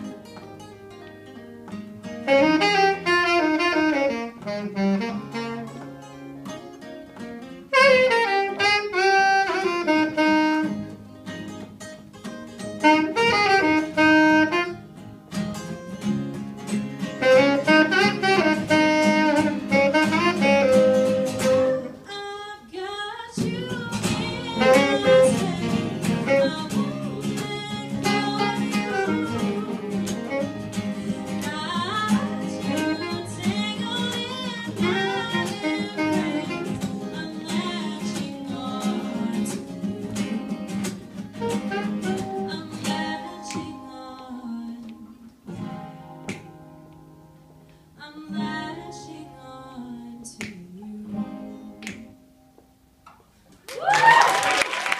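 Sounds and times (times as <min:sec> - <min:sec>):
strummed acoustic guitars: 0:00.0 - 0:22.4, 0:23.3 - 0:52.6
saxophone melody: 0:02.0 - 0:06.6, 0:07.6 - 0:11.6, 0:12.6 - 0:15.7, 0:17.1 - 0:22.2, 0:23.9 - 0:44.1
woman singing: 0:21.6 - 0:45.4, 0:48.0 - 0:52.2.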